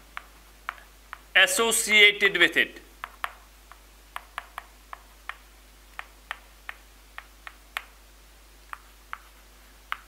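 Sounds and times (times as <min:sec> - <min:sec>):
chalk tapping on blackboard: 0:00.1 - 0:01.3, 0:03.0 - 0:08.0, 0:08.7 - 0:10.0.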